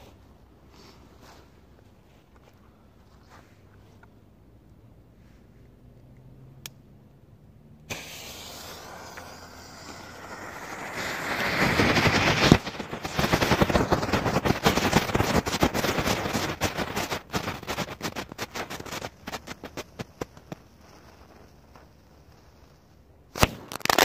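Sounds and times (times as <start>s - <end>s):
firework bang: 7.9s - 20.7s
firework spraying hiss: 7.9s - 24.0s
rapid firework crackling: 7.9s - 24.0s.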